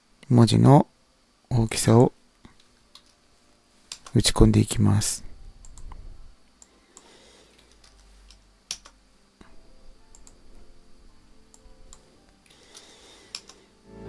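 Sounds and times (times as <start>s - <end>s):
keyboard and mouse clicks: 2.6s - 3.1s, 3.9s - 4.2s, 5.6s - 6.0s, 6.6s - 9.0s, 10.1s - 10.4s, 12.7s - 13.6s.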